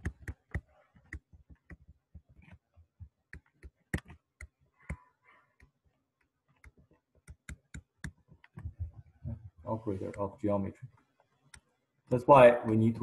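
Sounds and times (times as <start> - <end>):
stylus clicking on pen tablet: 0.0 - 8.8.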